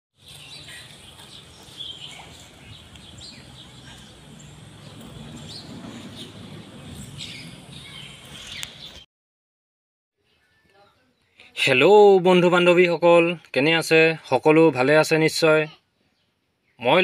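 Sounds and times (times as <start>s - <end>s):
bird chirps: 0.2s - 9.0s.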